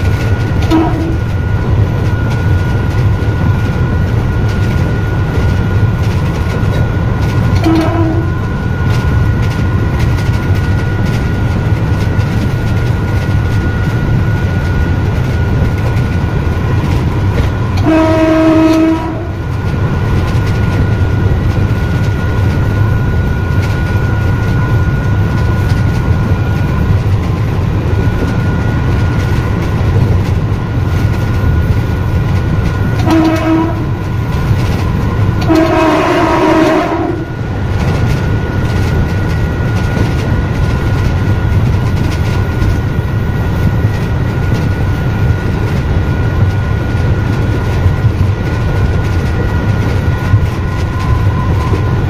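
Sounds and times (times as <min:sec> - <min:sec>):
train rumble with high whine: 0:00.0 - 0:52.0
train horn blasts: 0:00.6 - 0:01.3, 0:07.6 - 0:08.9, 0:17.4 - 0:19.5, 0:32.9 - 0:34.2, 0:35.4 - 0:37.4.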